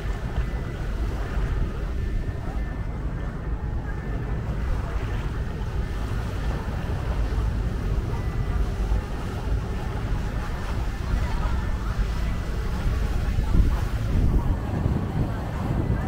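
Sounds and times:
choppy river water: 0:00.0 - 0:16.0
motorboat running: 0:00.0 - 0:16.0
wind buffeting microphone: 0:00.0 - 0:16.0.

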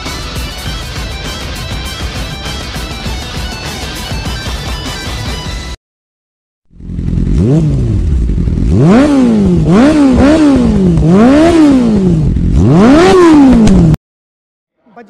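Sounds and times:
motorcycle engine revving: 0:06.7 - 0:14.0.

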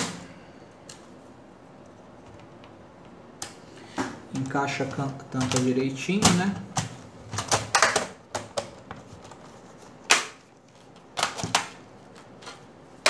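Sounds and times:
plastic clips snapping into place: 0:06.2 - 0:08.9, 0:10.1 - 0:11.8.

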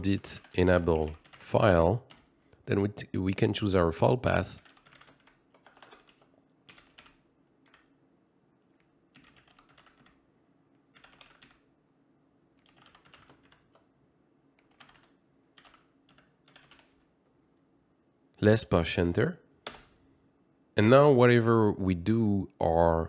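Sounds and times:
typing on a keyboard: 0:00.1 - 0:02.3, 0:04.6 - 0:07.9, 0:08.8 - 0:10.2, 0:10.9 - 0:11.6, 0:12.6 - 0:13.9, 0:14.6 - 0:17.1.

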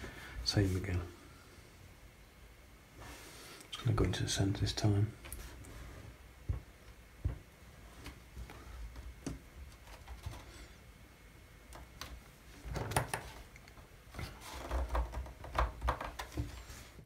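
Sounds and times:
knocking and rustling: 0:05.5 - 0:10.5, 0:14.1 - 0:17.0.

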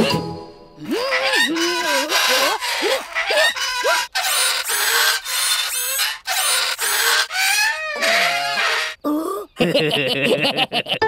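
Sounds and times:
shrill squeals: 0:00.8 - 0:09.0.

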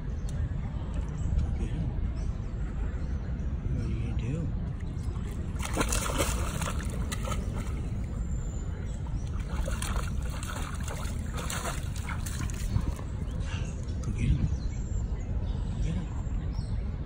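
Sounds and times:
steady low rumble: 0:00.0 - 0:17.0
dog splashing through water: 0:05.6 - 0:08.2, 0:09.2 - 0:13.3.

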